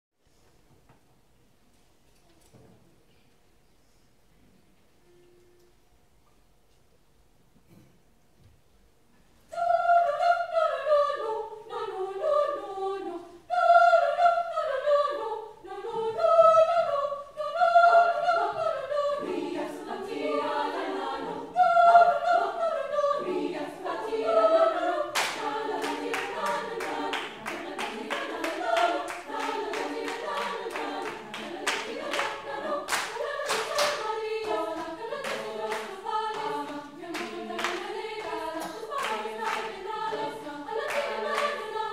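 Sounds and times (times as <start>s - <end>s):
women's choir singing: 9.5s - 41.9s
hands clapping rhythm: 25.1s - 41.9s.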